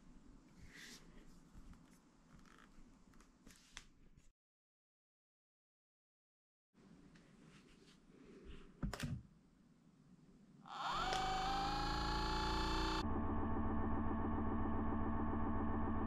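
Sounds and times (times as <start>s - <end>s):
massage gun motor buzzing: 10.7s - 13.0s.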